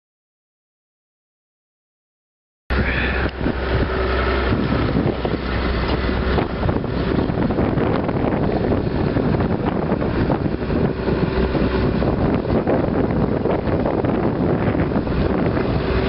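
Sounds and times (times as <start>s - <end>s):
excavator diesel engine running: 2.7s - 16.0s
wind buffeting microphone: 2.7s - 16.0s.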